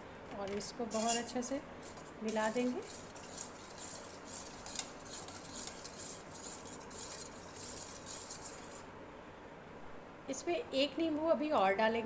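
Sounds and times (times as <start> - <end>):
metal spoon stirring in steel pot: 0.9 - 8.8.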